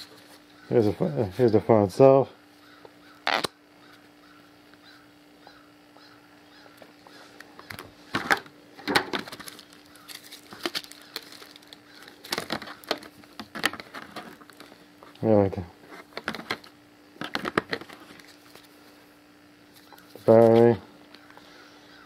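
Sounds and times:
faint steady hum: 0.0s - 22.0s
packaging rustling and crackling: 7.7s - 14.8s, 15.8s - 18.8s.

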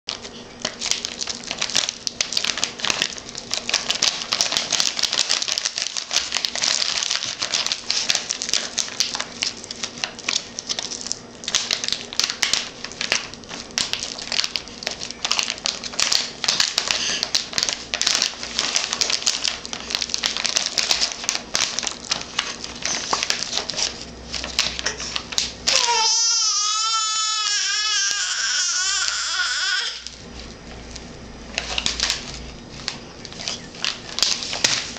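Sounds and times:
plastic pouches crinkling: 0.1s - 34.9s
baby crying: 25.7s - 30.1s.

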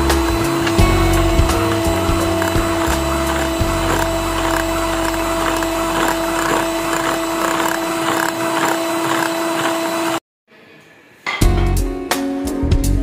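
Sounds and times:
electric hand mixer running: 0.0s - 10.2s.

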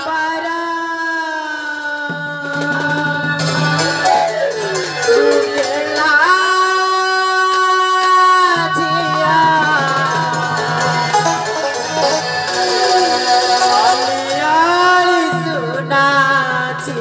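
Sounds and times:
instrumental accompaniment: 2.4s - 7.8s, 8.6s - 15.9s
woman singing folk song: 5.6s - 11.2s, 13.5s - 17.0s.

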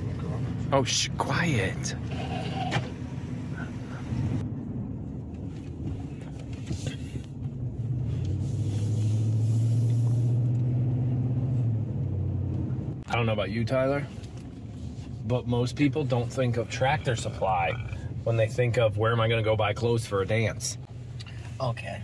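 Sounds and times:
truck engine drone: 0.0s - 14.2s
road noise: 0.0s - 22.0s.

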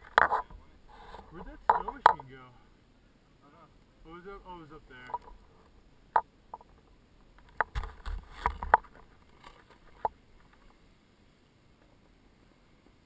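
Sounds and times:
snowboard knocks and scrapes: 7.6s - 10.1s.

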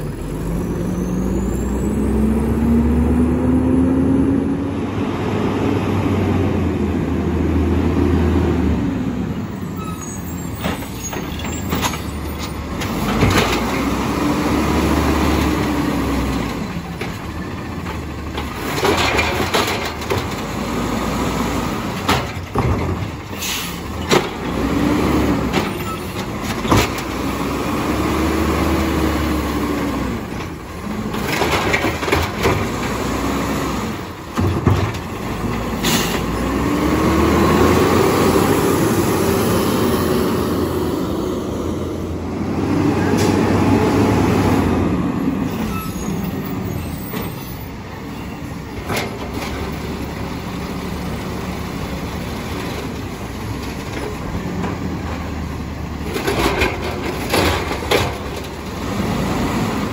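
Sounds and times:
garbage truck engine revving: 0.0s - 9.4s, 12.6s - 17.0s, 23.8s - 47.2s, 49.1s - 59.9s
air brake hisses: 35.8s - 36.2s.

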